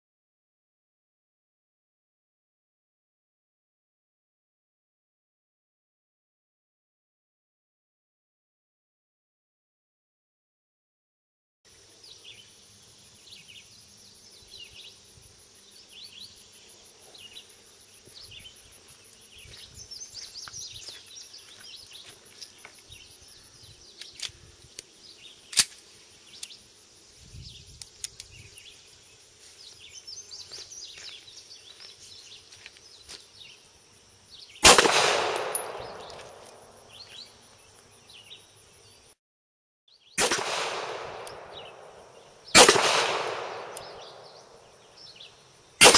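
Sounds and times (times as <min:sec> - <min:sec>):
pistol handling clicks: 0:25.5 - 0:25.8, 0:34.7 - 0:36.6, 0:40.4 - 0:41.6, 0:42.6 - 0:44.1
pistol shot: 0:34.6 - 0:36.4, 0:40.2 - 0:41.9, 0:42.5 - 0:44.3.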